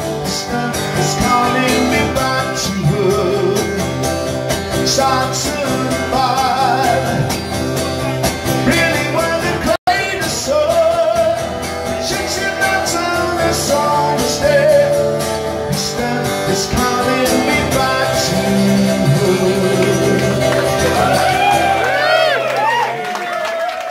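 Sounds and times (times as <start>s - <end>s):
man singing: 0.0s - 21.8s
strummed acoustic guitar: 0.0s - 22.4s.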